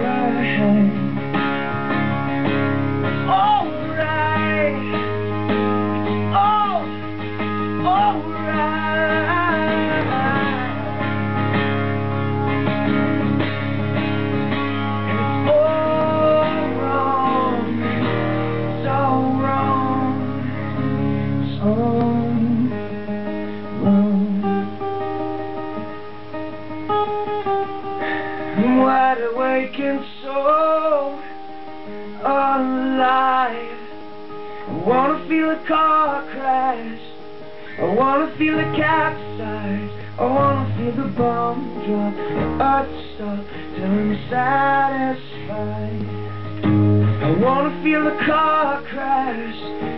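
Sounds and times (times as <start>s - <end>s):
man singing wordlessly: 0.0s - 1.2s, 3.2s - 5.3s, 6.2s - 11.2s, 15.1s - 23.0s, 23.8s - 24.9s, 28.5s - 31.4s, 32.1s - 46.2s, 47.2s - 49.9s
acoustic guitar playing: 0.0s - 49.9s.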